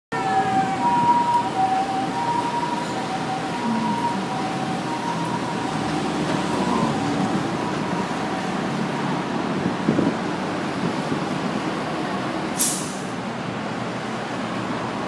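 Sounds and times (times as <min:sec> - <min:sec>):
two-tone ambulance siren: 0:00.1 - 0:09.5
city street traffic: 0:00.1 - 0:15.0.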